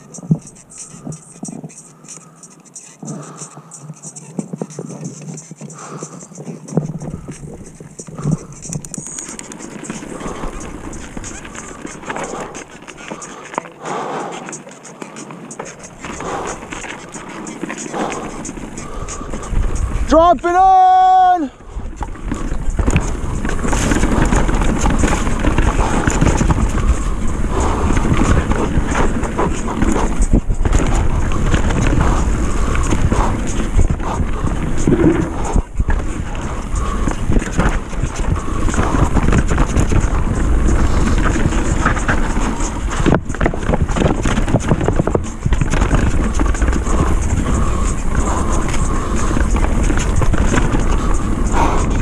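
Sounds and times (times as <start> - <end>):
bike chain rattling: 0.0 - 52.0
bike tyre noise: 0.0 - 52.0
wind on microphone: 15.8 - 52.0.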